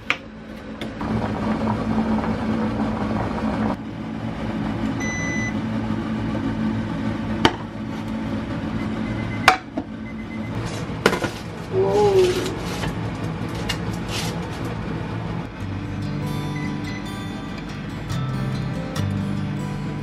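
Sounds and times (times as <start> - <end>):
induction cooktop humming: 0.0 - 20.0
water boiling: 0.9 - 5.5.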